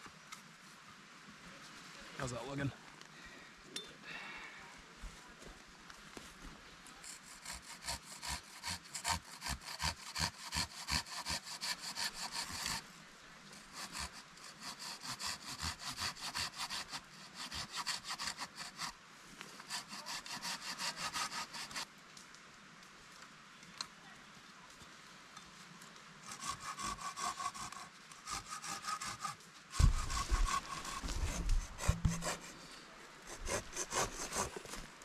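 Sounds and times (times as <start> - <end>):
hand saw cutting wood: 7.0 - 12.8, 13.6 - 19.0, 19.6 - 21.8, 26.2 - 32.7, 33.3 - 34.9.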